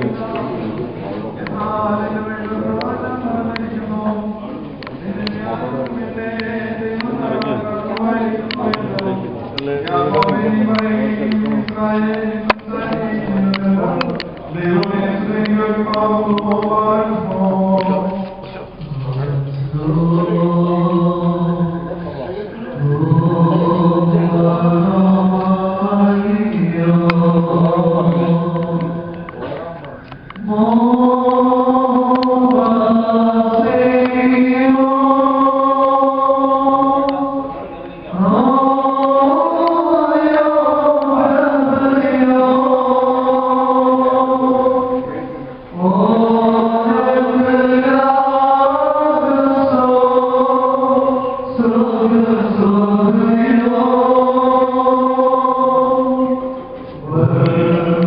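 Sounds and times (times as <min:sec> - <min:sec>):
group chanting a hymn: 0:00.0 - 0:58.0.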